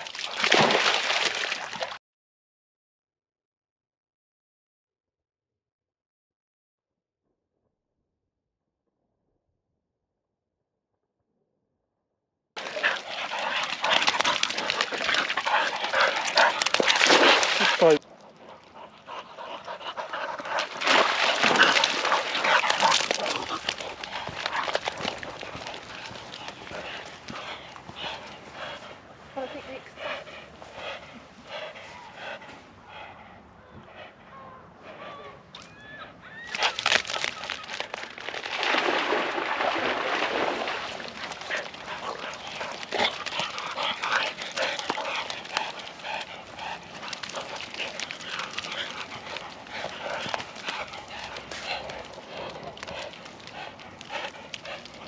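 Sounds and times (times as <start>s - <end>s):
dogs whining and barking: 34.4s - 37.8s.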